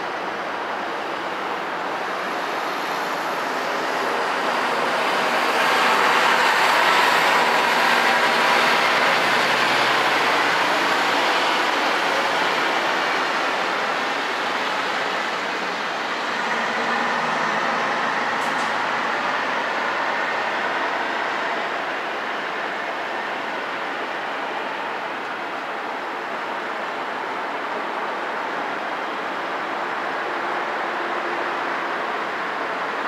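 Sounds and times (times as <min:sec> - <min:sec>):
passing traffic rushing: 0:00.0 - 0:33.0.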